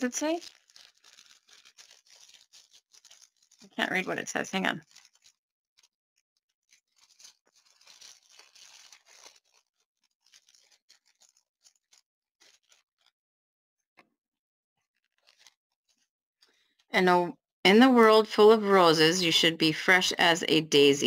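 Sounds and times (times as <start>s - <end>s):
plastic packaging crinkling: 0.0s - 13.2s, 14.9s - 16.8s.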